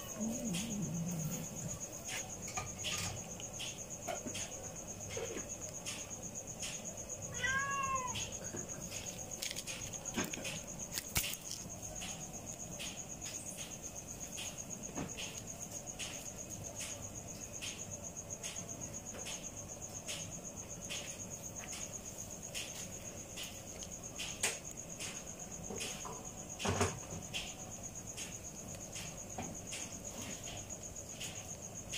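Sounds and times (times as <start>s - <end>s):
crickets chirring: 0.0s - 31.9s
cat meowing: 7.3s - 8.5s.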